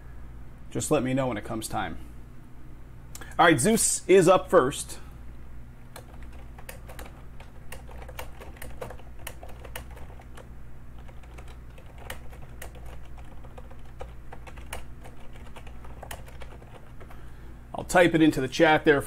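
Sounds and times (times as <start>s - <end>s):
low steady hum: 0.0s - 19.0s
keyboard typing: 5.9s - 17.2s.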